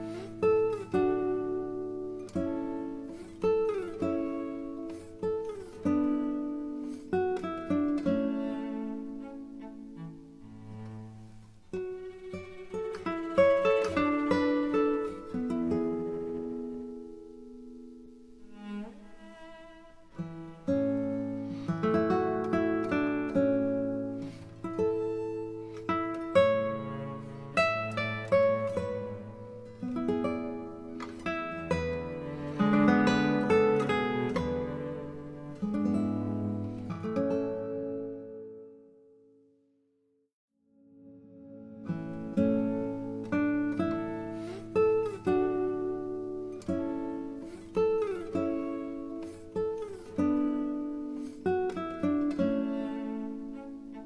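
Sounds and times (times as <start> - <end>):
acoustic guitar picking notes: 0.0 - 39.1, 40.8 - 54.0.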